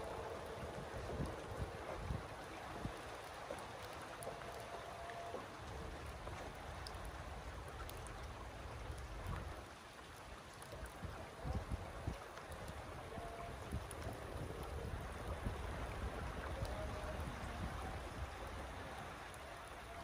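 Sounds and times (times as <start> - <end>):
steady rain falling: 0.0 - 20.0.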